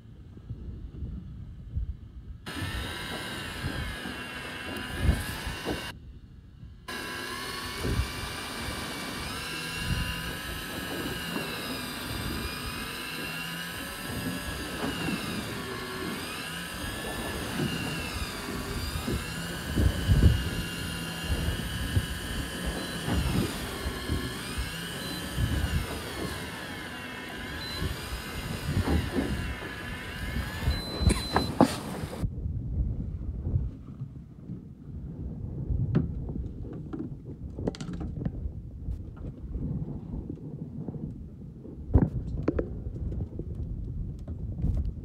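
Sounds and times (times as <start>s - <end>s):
electric fishing reel whine: 2.5s - 6.0s, 6.9s - 32.2s.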